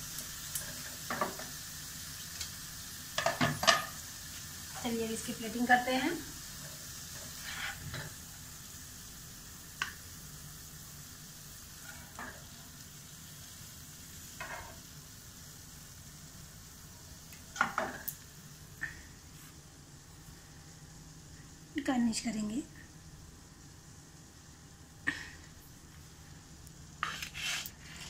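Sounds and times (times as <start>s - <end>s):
faint steady hiss: 0.0s - 28.0s
spatula scraping and tapping pan: 3.2s - 3.9s, 14.4s - 14.8s.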